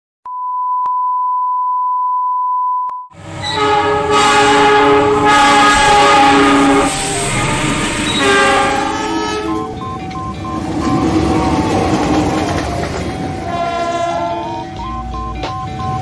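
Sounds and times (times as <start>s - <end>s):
high test tone beep: 0.3s - 3.1s, 9.3s - 11.8s, 14.4s - 16.0s
locomotive horn: 3.2s - 10.0s, 13.3s - 14.9s
diesel locomotive rumble: 3.2s - 16.0s.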